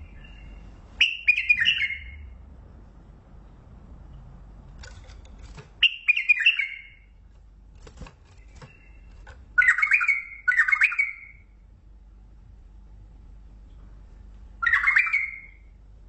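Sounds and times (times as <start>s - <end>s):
bulbul warbling song: 0.0s - 2.3s, 5.8s - 7.2s, 8.4s - 11.5s, 14.6s - 15.7s.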